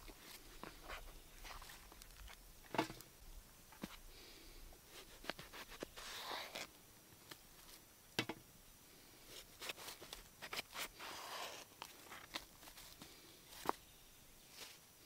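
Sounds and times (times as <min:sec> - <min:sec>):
camp gear clicks and rustles: 0:00.0 - 0:03.1, 0:09.4 - 0:13.9.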